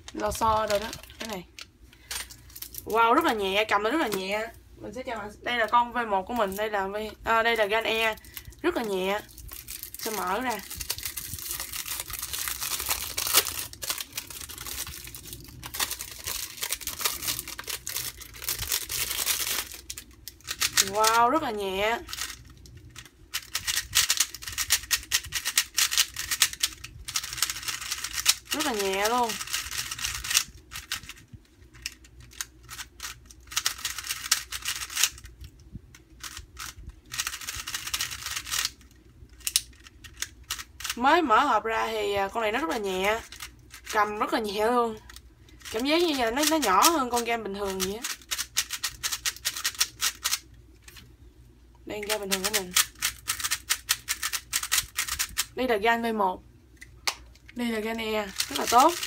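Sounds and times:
plastic film crinkling and tearing: 0:00.0 - 0:02.9, 0:09.2 - 0:21.2
plastic puzzle cube clicking: 0:29.3 - 0:31.2, 0:31.8 - 0:35.3, 0:36.2 - 0:38.8, 0:47.7 - 0:50.4, 0:52.4 - 0:55.5.

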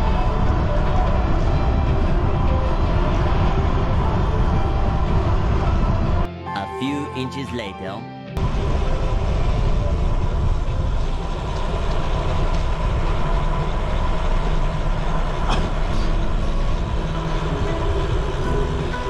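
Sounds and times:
wind rushing over microphone: 0:00.0 - 0:06.3.

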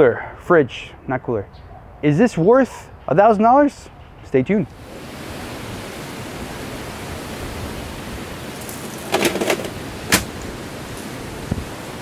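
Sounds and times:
wind: 0:00.0 - 0:12.0
surf: 0:04.8 - 0:12.0.

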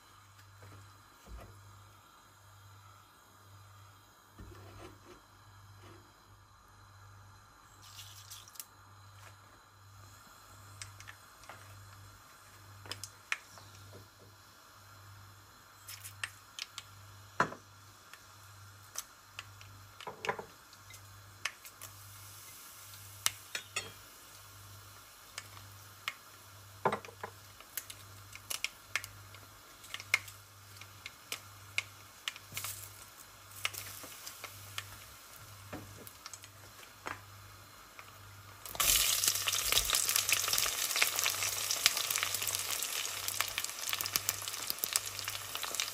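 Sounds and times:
onions sizzling in hot oil: 0:07.7 - 0:09.1, 0:10.0 - 0:45.9
seeds popping in hot oil: 0:07.8 - 0:08.8, 0:10.6 - 0:15.0, 0:15.6 - 0:45.9.

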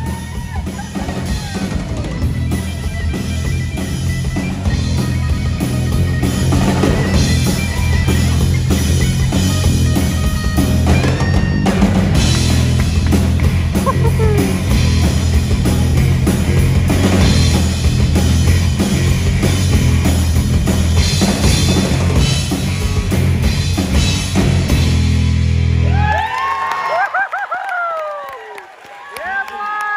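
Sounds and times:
crowd whooping and cheering: 0:00.0 - 0:02.9, 0:13.8 - 0:15.3, 0:25.6 - 0:29.9
live rock band playing: 0:00.0 - 0:26.2
drum kit: 0:00.0 - 0:26.3
bass guitar: 0:00.0 - 0:26.4.

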